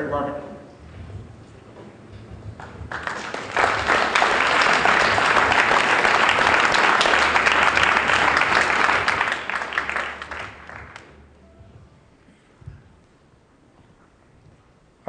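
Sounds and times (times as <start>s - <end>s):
audience applauding: 2.6s - 11.2s.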